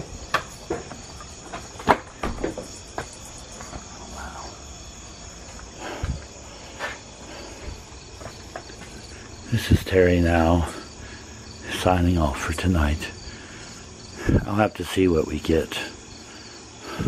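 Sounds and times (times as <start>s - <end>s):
footsteps: 0.0s - 4.2s, 5.3s - 9.4s
night insects chirring: 0.0s - 17.0s.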